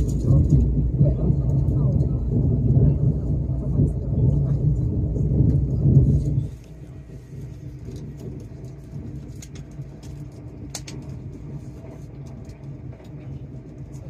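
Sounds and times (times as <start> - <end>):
train cabin rumble and hum: 0.0 - 14.0.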